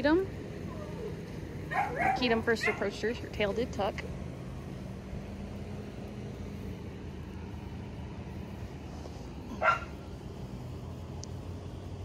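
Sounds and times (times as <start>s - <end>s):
dog barking: 1.7s - 2.9s, 9.6s - 10.0s.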